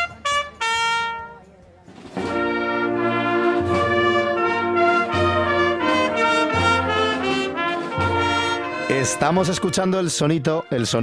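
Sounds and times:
drums: 0.0 - 9.8
cornets holding long notes: 2.2 - 11.0.

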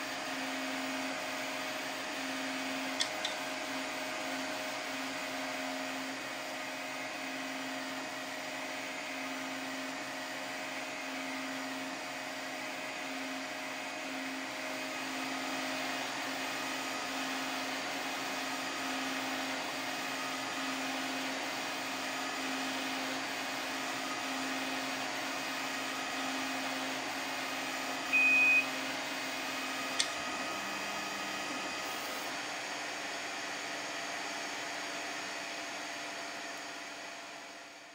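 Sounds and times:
printer motors and fans humming: 0.0 - 37.8
short high beep: 28.1 - 28.8.

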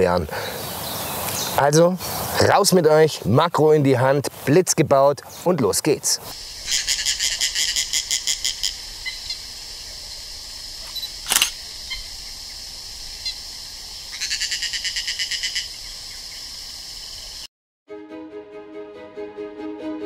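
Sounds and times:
steady high hiss: 0.0 - 5.0, 5.6 - 17.5
sharp click: 10.8 - 11.6.

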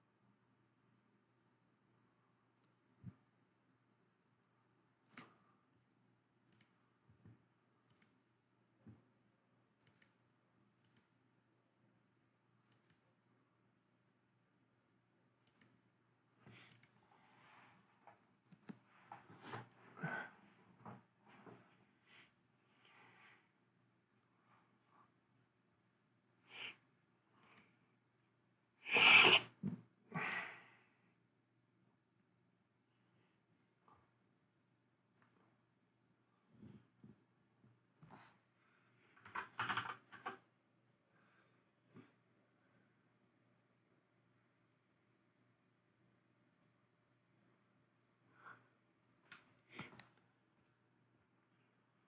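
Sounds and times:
faint clicks: 12.6 - 13.1, 15.4 - 15.8
faint breaths: 19.1 - 23.6.

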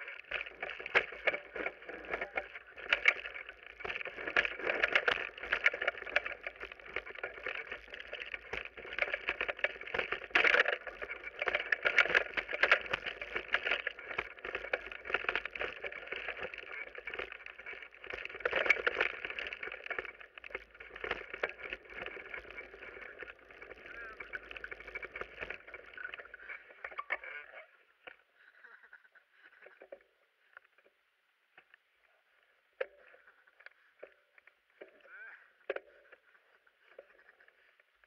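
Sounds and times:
bike clattering over bumps: 0.0 - 27.2
bike tyre and riding noise: 0.0 - 28.7.

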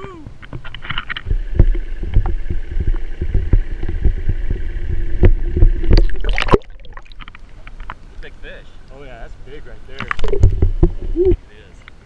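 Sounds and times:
water sloshing against camera: 0.3 - 12.0
underwater hush: 1.2 - 7.9, 10.0 - 11.4.

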